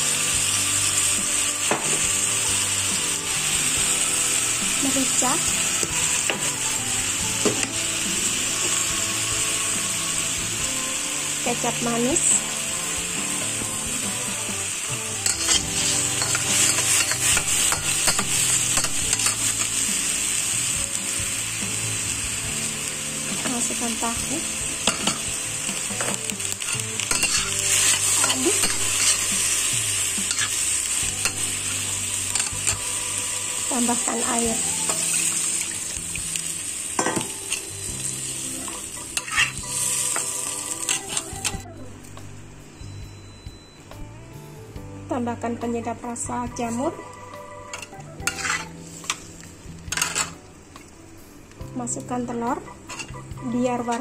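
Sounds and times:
chicken sizzling in oil: 0:00.0 - 0:41.6, 0:46.5 - 0:51.2
metal spatula scraping wok: 0:15.1 - 0:20.1, 0:24.8 - 0:36.0, 0:37.0 - 0:41.6, 0:47.7 - 0:50.4, 0:52.8 - 0:53.3.

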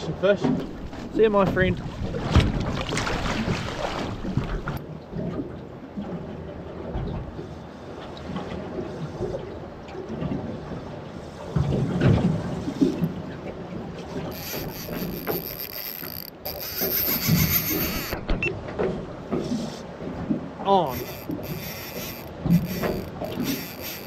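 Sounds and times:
water slapping against boat: 0:00.0 - 0:24.0
wind: 0:00.0 - 0:24.0
high-pitched rattle: 0:14.3 - 0:18.2, 0:20.9 - 0:24.0.

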